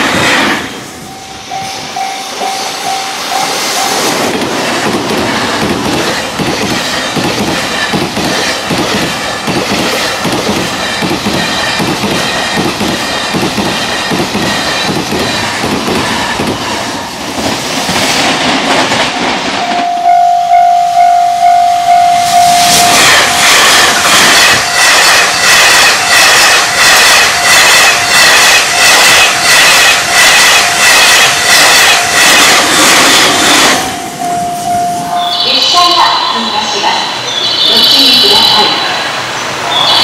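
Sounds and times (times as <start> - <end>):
clatter of train wheels: 0.0 - 19.9, 22.2 - 34.7
train rushing past: 0.0 - 40.0
level crossing alarm ringing: 1.0 - 4.2, 19.6 - 32.6, 33.5 - 39.0.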